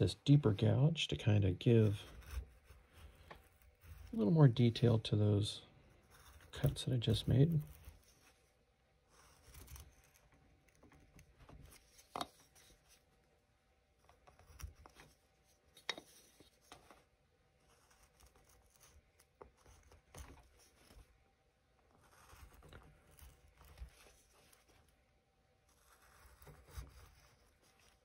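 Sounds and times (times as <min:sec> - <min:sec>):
gouge scraping wood: 0:01.7 - 0:05.0, 0:09.1 - 0:13.1, 0:14.2 - 0:17.0, 0:25.7 - 0:28.0.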